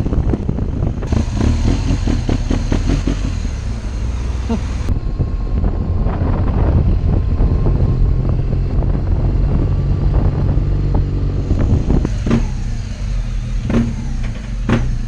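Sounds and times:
motorcycle engine running: 0.0s - 15.0s
sharp knocks: 13.6s - 15.0s.

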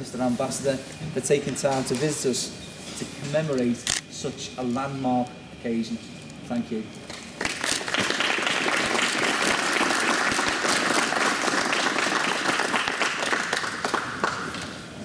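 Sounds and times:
audience applauding: 7.4s - 14.8s.

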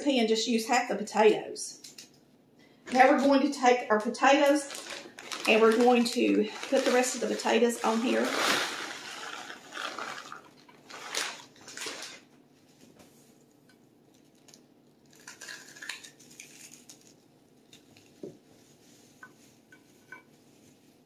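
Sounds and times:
shredded potatoes pattering into dish: 4.4s - 12.2s
hands rustling potatoes: 4.4s - 13.4s.

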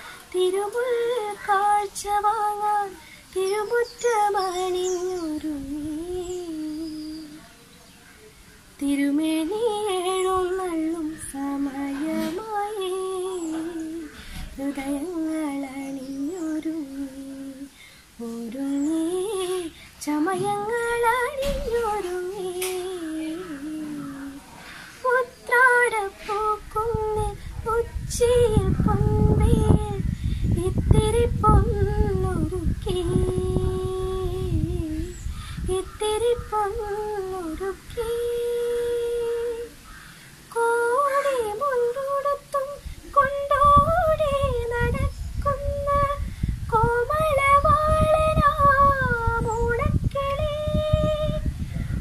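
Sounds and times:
woman singing solo: 40.5s - 51.6s.

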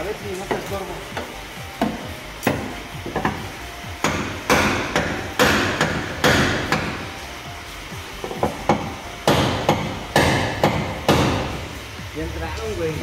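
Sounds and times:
hammer striking metal: 0.5s - 7.1s, 8.2s - 11.8s.

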